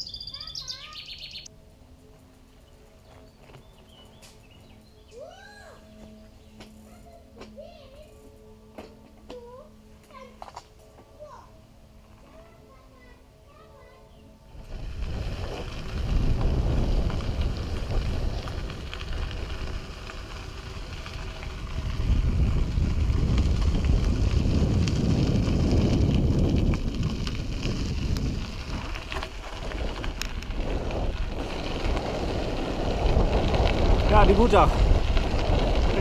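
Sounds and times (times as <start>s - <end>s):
wind buffeting microphone: 14.5s - 36.0s
crackling tyre noise: 14.6s - 36.0s.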